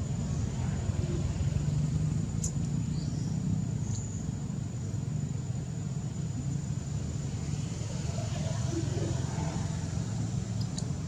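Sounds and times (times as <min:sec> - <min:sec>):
engine idling rumble: 0:00.0 - 0:11.0.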